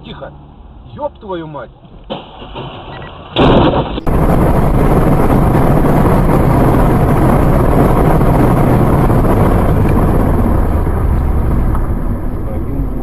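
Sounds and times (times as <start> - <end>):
wind and road noise: 0.0 - 13.0
low engine hum: 4.0 - 13.0.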